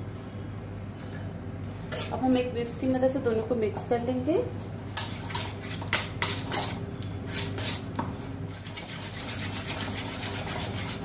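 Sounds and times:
whisk scraping in bowl: 5.0s - 7.9s, 8.5s - 11.0s.

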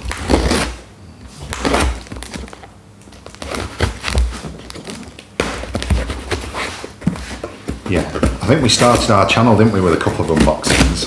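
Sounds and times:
packing tape ripping: 0.0s - 0.8s, 1.4s - 6.6s.

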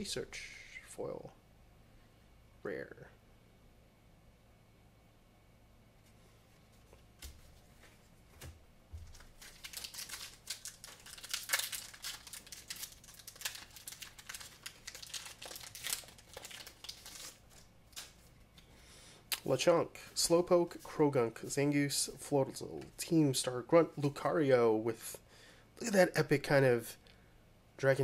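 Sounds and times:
foil wrapper crinkling: 9.0s - 18.6s.

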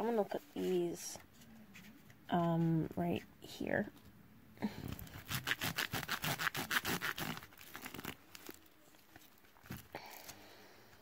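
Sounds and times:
paper packaging rustling: 4.9s - 10.3s.

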